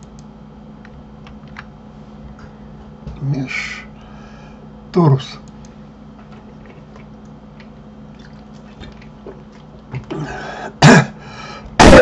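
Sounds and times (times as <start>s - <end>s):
soft clicks: 0.0s - 1.7s
faint steady hum: 0.0s - 12.0s
man clearing his throat: 10.1s - 11.2s, 11.8s - 12.0s
loud cough-like burst: 10.8s - 11.2s, 11.8s - 12.0s.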